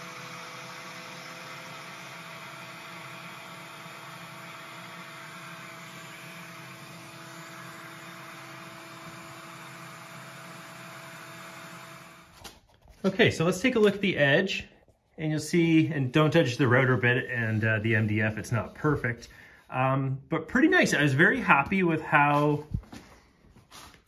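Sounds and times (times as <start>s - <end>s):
power tool motor whirring: 0.0s - 12.3s
shop vacuum running: 0.0s - 12.5s, 15.2s - 24.0s.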